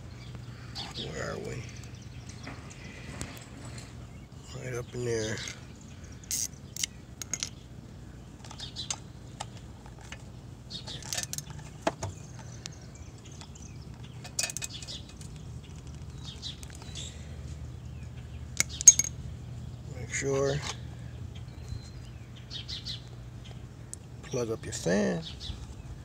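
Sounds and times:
low steady hum: 0:00.0 - 0:26.0
socket wrench clicking: 0:06.3 - 0:07.6.

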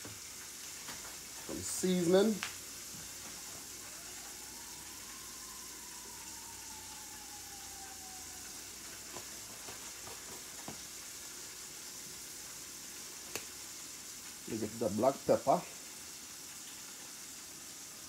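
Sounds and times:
pot hissing on a stove: 0:00.0 - 0:18.0.

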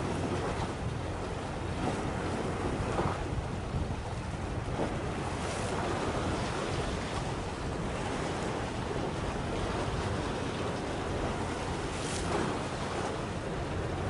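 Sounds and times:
sea wash: 0:00.0 - 0:14.0
wind buffeting microphone: 0:00.0 - 0:14.0.

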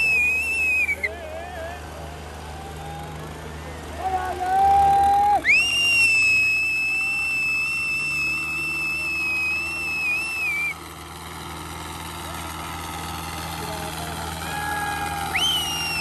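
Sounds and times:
shrill whistle: 0:00.0 - 0:01.1, 0:05.4 - 0:10.8, 0:15.3 - 0:16.0.

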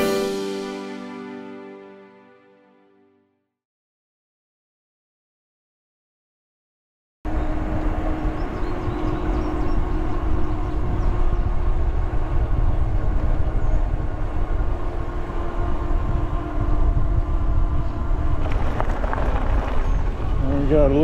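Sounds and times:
motor and tyres humming: 0:07.3 - 0:21.0
wind rumble on microphone: 0:07.3 - 0:21.0.

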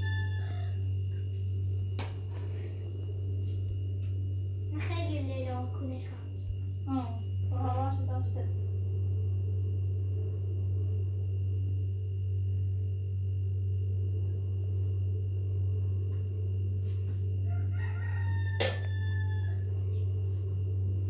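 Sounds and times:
rooster crowing: 0:00.0 - 0:01.1, 0:17.4 - 0:20.2
low hum: 0:00.0 - 0:21.0.

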